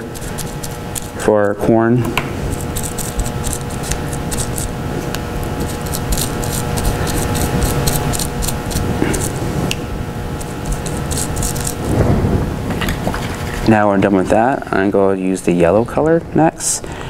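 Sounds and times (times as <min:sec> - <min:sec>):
paintbrush scratching bubble wrap: 0:00.0 - 0:01.5, 0:02.4 - 0:04.8, 0:05.4 - 0:09.4, 0:10.4 - 0:11.9
steady low hum: 0:00.0 - 0:17.0.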